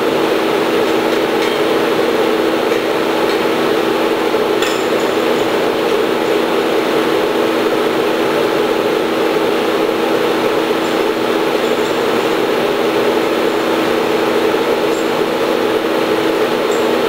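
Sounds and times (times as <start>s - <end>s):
industrial machinery drone: 0.0s - 17.0s
wrench clinking on bolts: 1.0s - 1.9s.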